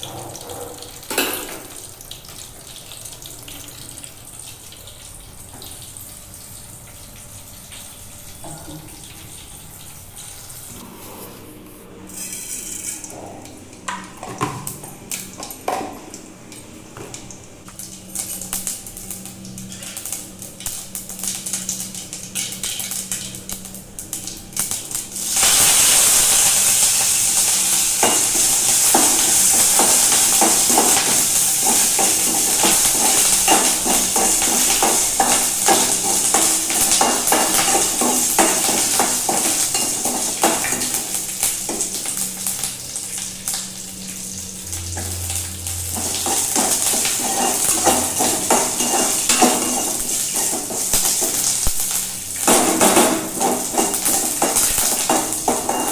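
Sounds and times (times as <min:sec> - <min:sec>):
chillies sizzling in hot oil: 0:12.2 - 0:13.2, 0:17.6 - 0:55.9
metal ladle scraping pan: 0:46.0 - 0:51.4.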